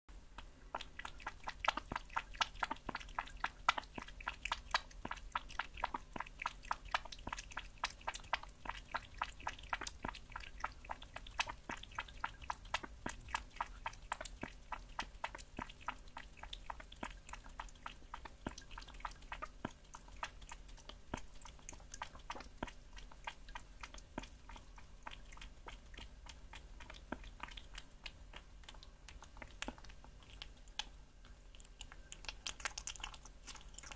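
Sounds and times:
kitten chewing meat: 0:00.1 - 0:33.9.

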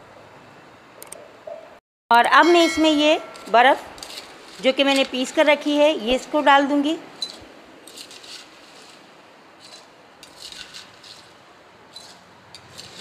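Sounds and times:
spoon scraping ice: 0:03.4 - 0:05.4, 0:07.2 - 0:13.0.

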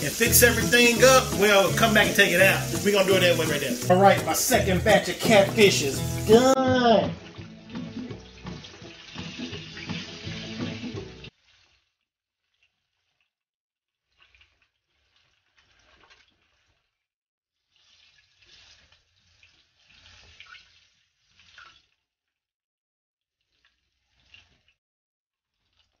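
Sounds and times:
frying oil sizzling: 0:00.0 - 0:11.9, 0:17.7 - 0:21.6.

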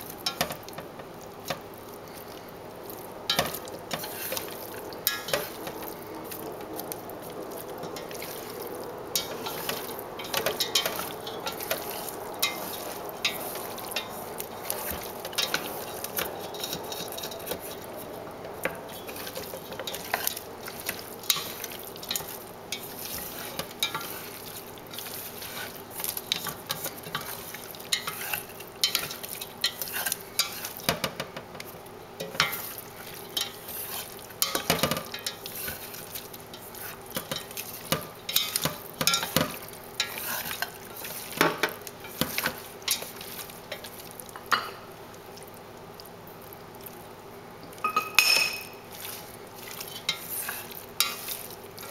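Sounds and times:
wet squelching of meat: 0:01.8 - 0:30.8, 0:48.8 - 0:51.9
chopsticks tapping a pot: 0:34.4 - 0:35.4, 0:37.2 - 0:40.6.

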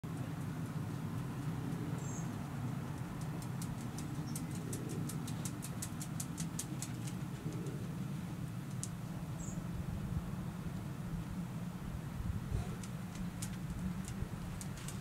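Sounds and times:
low background rumble: 0:00.1 - 0:15.0
dog claws ticking on concrete: 0:02.9 - 0:07.2.

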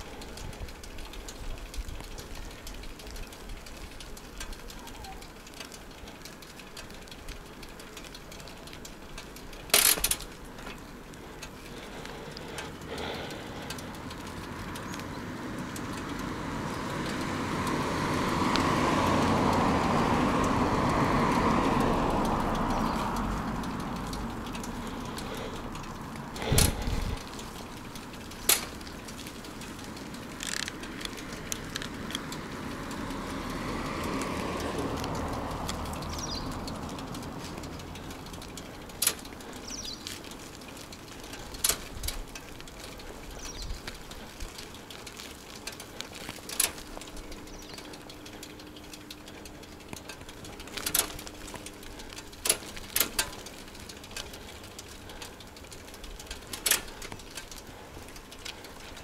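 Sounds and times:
road noise: 0:00.0 - 0:59.0
sharp clicks from bicycle parts: 0:00.0 - 0:59.0.

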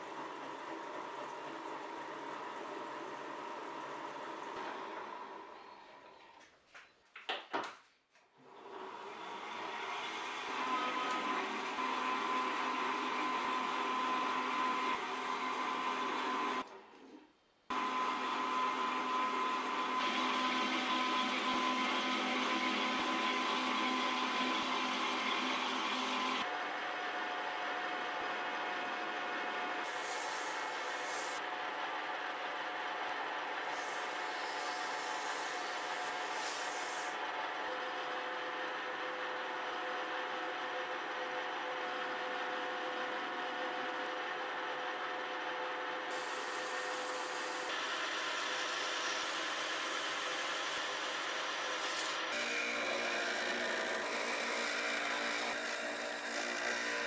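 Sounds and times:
metal lathe humming and whining: 0:00.0 - 0:04.6, 0:08.4 - 0:16.7, 0:17.7 - 0:57.0
cutting tool hissing on metal: 0:29.8 - 0:31.4, 0:33.6 - 0:37.2, 0:46.1 - 0:52.8.

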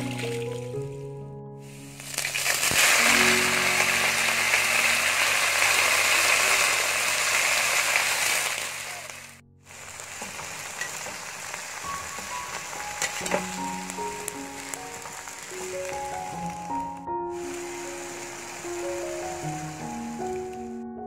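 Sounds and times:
leaves sizzling in hot oil: 0:01.7 - 0:20.7.

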